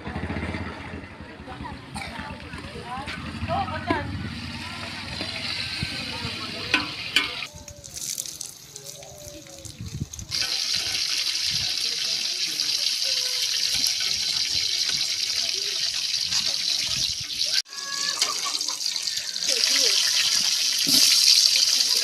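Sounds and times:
meat sizzling in a pot: 0:04.6 - 0:22.0.

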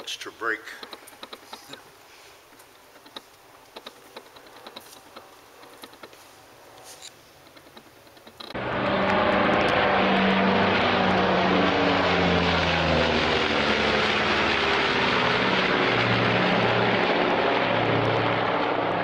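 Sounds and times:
loud engine-like hum: 0:08.5 - 0:19.0.

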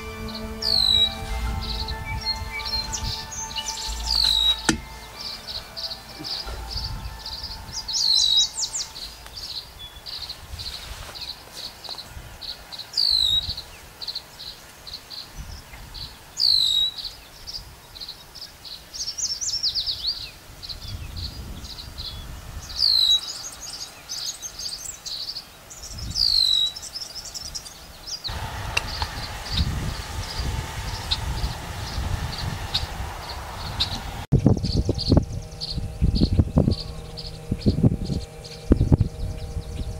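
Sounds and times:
bird call sweeping down in pitch: 0:00.0 - 0:09.6
low wind rumble: 0:00.0 - 0:16.4, 0:19.7 - 0:24.1, 0:28.2 - 0:39.9
swallows chirping: 0:00.0 - 0:39.9.

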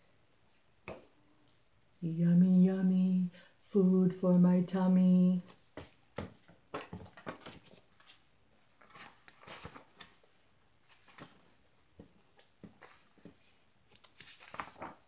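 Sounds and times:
book pages turning and rustling: 0:05.4 - 0:15.0.

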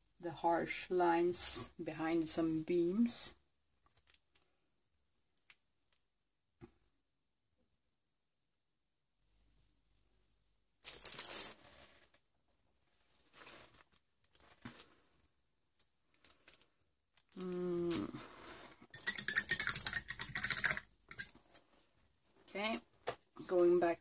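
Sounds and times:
paper rustle: 0:10.8 - 0:12.2
rapid clicks: 0:19.0 - 0:21.3.

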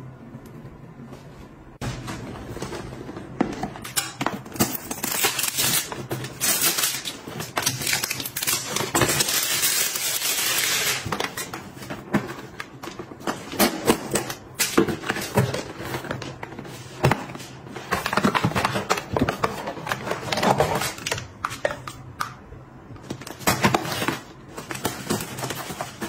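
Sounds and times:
plastic shrink wrap crinkling: 0:03.9 - 0:11.8.

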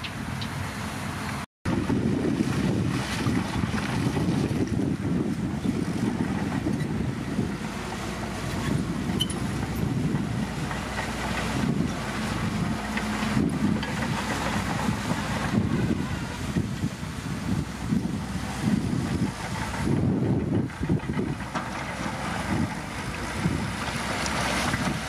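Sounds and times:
bulldozer diesel engine: 0:00.0 - 0:25.0
rock and gravel being pushed: 0:02.4 - 0:25.0.

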